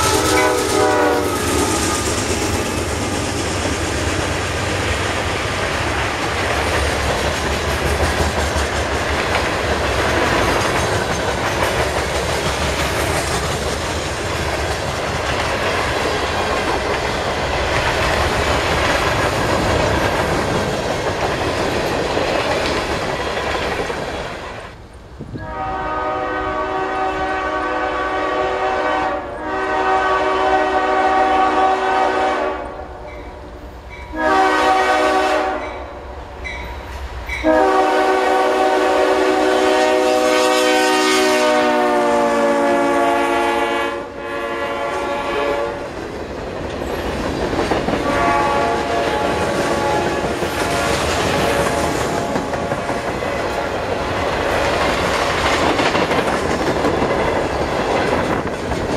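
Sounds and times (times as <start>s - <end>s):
locomotive air horn blasts: 0.0s - 2.2s, 25.4s - 32.9s, 34.1s - 35.8s, 37.4s - 45.9s, 48.0s - 52.3s
freight train wheels rumbling on rail: 0.0s - 58.9s.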